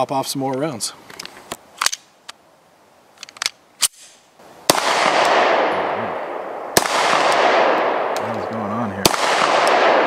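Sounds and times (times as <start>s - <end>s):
metallic clicks of pistol loading: 1.1s - 2.4s, 3.2s - 4.2s
loud pistol shot with echo: 4.7s - 8.3s, 9.0s - 10.0s.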